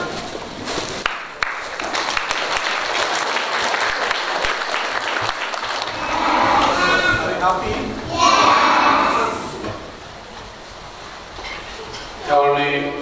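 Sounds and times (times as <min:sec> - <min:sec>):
crowd applauding: 0:01.0 - 0:07.4.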